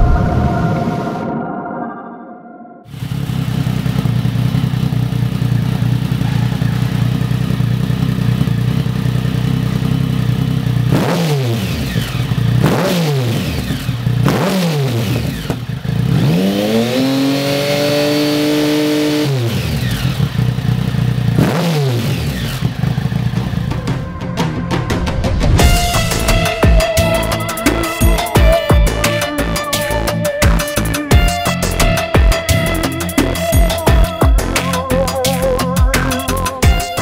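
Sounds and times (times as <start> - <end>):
motorcycle engine idling and revving: 2.9 - 37.0.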